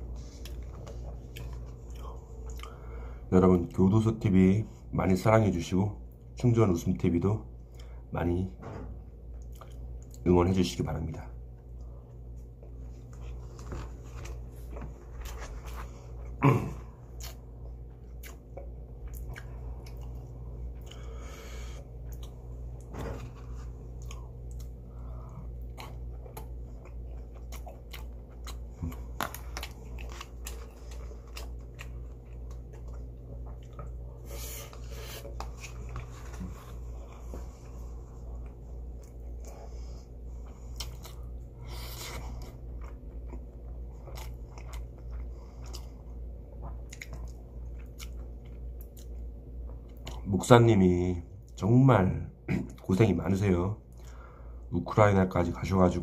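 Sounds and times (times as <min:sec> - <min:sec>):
steady low hum: 0:00.0 - 0:56.0
close chewing with mouth smacks: 0:00.1 - 0:02.8, 0:09.3 - 0:10.2, 0:17.0 - 0:21.1, 0:22.0 - 0:50.3.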